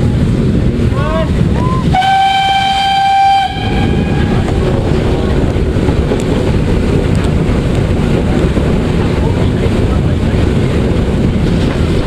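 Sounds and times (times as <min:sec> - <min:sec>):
steam locomotive running: 0:00.0 - 0:12.0
wind buffeting microphone: 0:00.0 - 0:12.0
steam whistle blast: 0:01.6 - 0:04.3.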